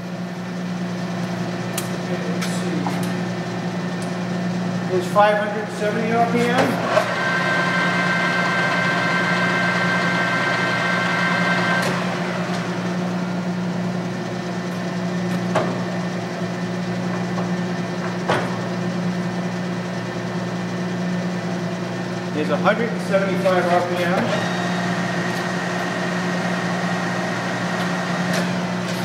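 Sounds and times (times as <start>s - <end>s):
lathe humming: 0.0s - 29.0s
gear whine: 22.3s - 29.0s.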